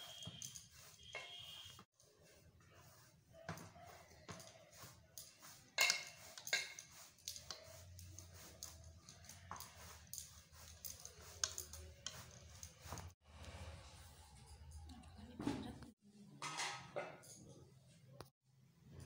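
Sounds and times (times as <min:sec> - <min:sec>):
steel ladle clinking on a plate: 0:05.8 - 0:06.9.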